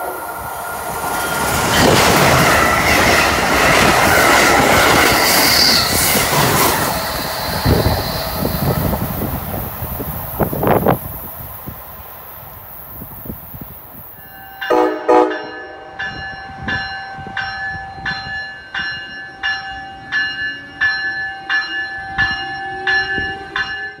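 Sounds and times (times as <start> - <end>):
locomotive bell ringing: 14.2 - 24.0
train horn blasts: 14.6 - 17.4.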